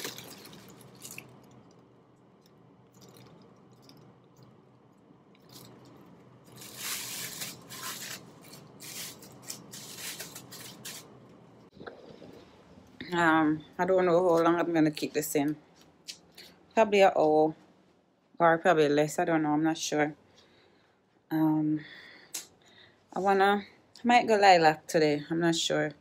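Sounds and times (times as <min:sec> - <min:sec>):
plastic shower cap crinkling: 0:00.0 - 0:01.4, 0:06.5 - 0:11.2.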